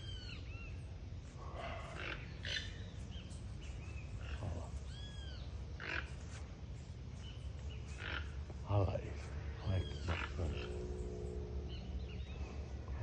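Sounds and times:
toucans croaking calls: 0.0 - 13.0
high arching squawks: 7.8 - 13.0.

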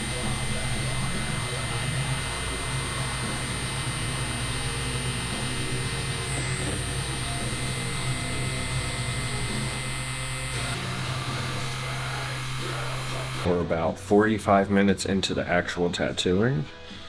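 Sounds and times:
tattoo machine buzzing: 0.0 - 13.5.

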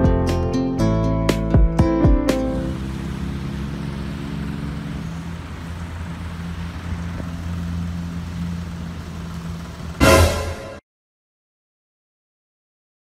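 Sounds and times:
plucked guitar notes: 0.0 - 4.6, 10.0 - 10.8
road traffic hum: 0.5 - 10.8.

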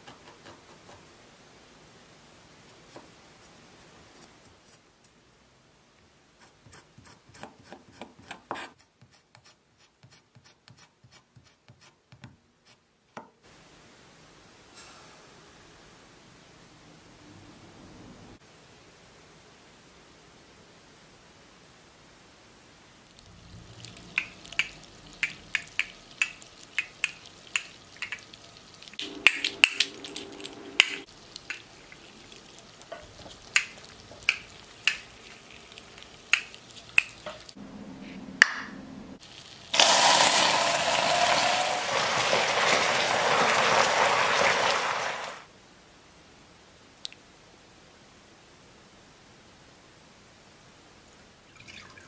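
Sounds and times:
caramel sizzling and spitting: 23.0 - 37.6, 39.2 - 45.5.

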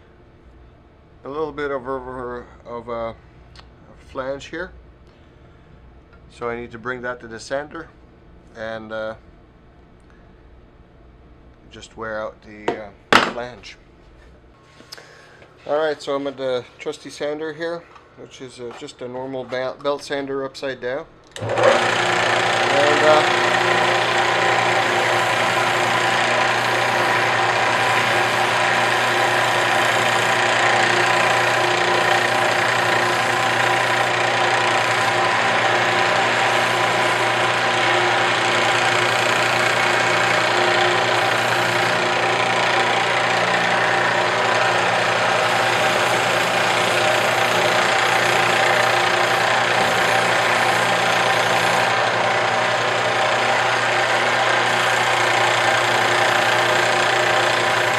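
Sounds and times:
belt sander running: 21.3 - 57.9.

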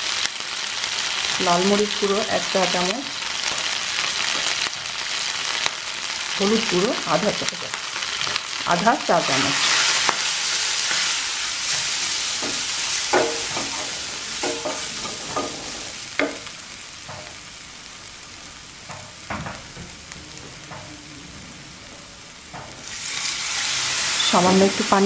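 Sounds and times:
onions sizzling in hot oil: 0.0 - 25.0
spatula scraping wok: 7.8 - 16.5, 22.6 - 25.0
spatula knocking on pan: 12.4 - 15.6, 16.2 - 16.5, 17.1 - 17.4.

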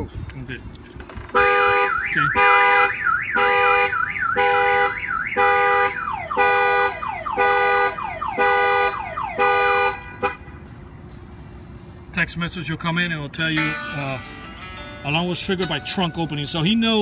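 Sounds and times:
car horn honking: 1.3 - 10.7
car alarm siren warbling: 1.6 - 9.8.

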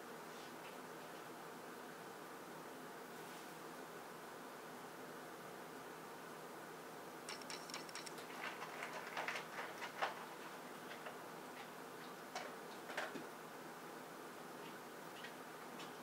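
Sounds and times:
steady background hiss: 0.0 - 16.0
small clicks and ticks: 7.3 - 10.3.

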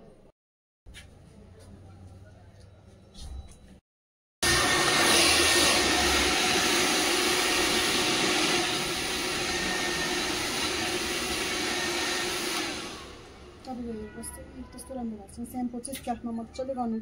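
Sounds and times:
hair dryer blowing: 4.4 - 13.5.

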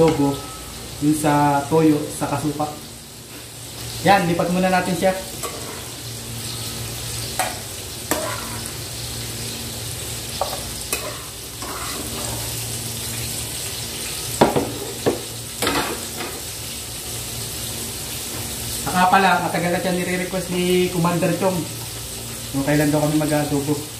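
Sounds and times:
potatoes sizzling in hot oil: 0.0 - 23.9
utensil scraping and clinking pan: 5.4 - 5.9, 8.1 - 8.6, 10.4 - 12.6.

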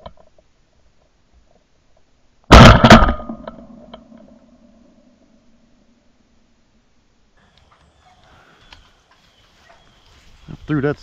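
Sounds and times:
shotgun firing: 2.5 - 3.8.

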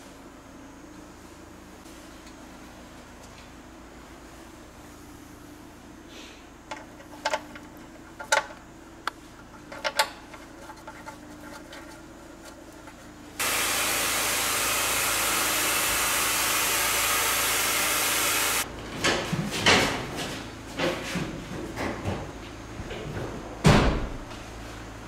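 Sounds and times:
metal clicks and knocks: 6.7 - 8.6, 9.5 - 12.0
loud steady hiss: 13.4 - 18.7.

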